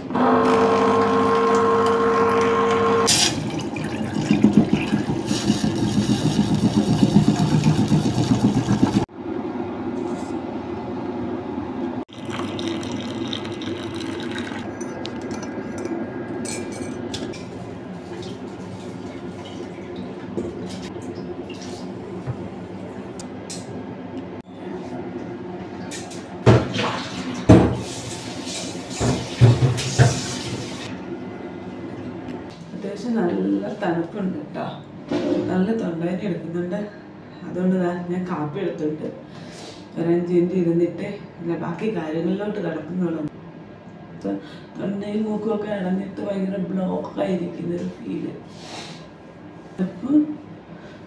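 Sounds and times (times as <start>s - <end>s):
water poured into a mug: 12.1s - 15.5s.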